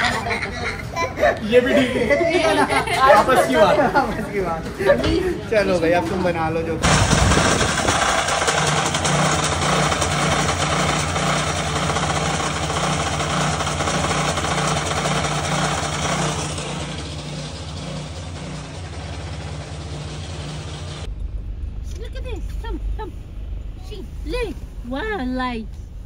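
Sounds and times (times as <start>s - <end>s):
chaff cutter chopping fodder: 6.8s - 21.1s
small engine running: 6.8s - 21.4s.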